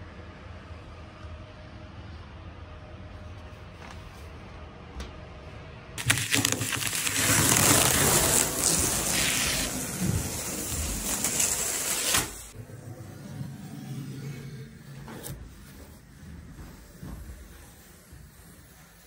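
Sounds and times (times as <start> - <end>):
plastic sheet crackling rustle: 6.0 - 12.5.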